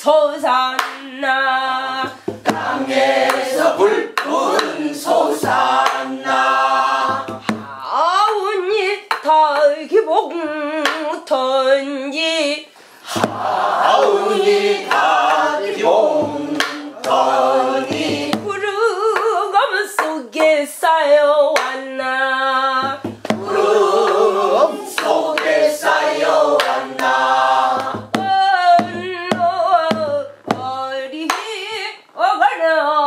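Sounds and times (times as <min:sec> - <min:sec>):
group singing folk song: 0:00.0 - 0:08.4, 0:13.0 - 0:31.4
sharp percussive beats: 0:02.1 - 0:07.8, 0:13.1 - 0:18.7, 0:22.8 - 0:30.7.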